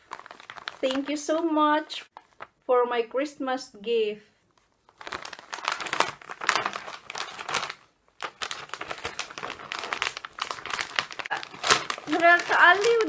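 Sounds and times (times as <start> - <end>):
wrapping paper tearing and crinkling: 0.0 - 1.2, 4.8 - 13.0.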